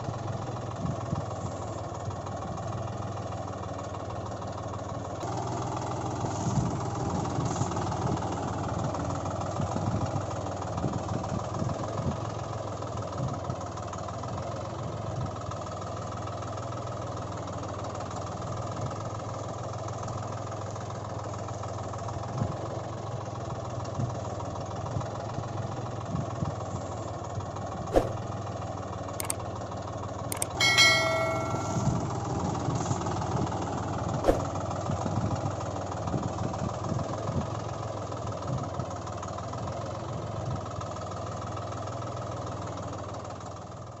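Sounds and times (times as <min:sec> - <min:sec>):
brief ringing tone: 0:30.4 - 0:32.2.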